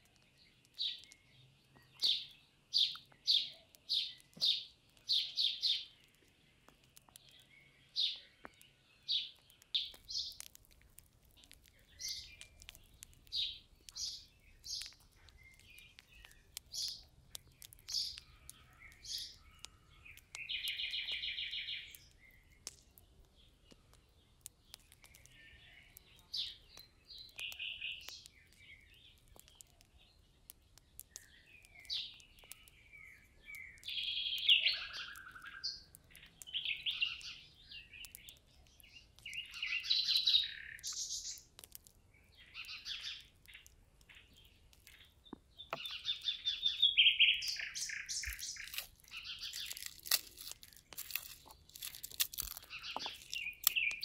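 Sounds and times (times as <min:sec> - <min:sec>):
songbirds singing: 0:00.0 - 0:54.0
garlic cracking apart: 0:09.3 - 0:21.3, 0:21.9 - 0:34.0, 0:38.0 - 0:39.7, 0:40.8 - 0:46.4, 0:47.4 - 0:54.0.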